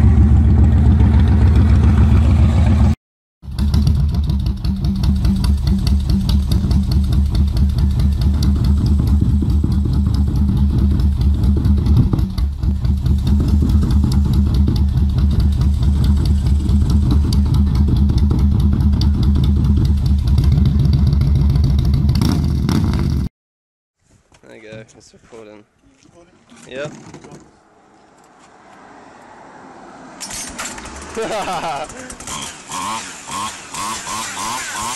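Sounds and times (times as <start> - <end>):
motorcycle engine running loudly: 0.0 - 23.3.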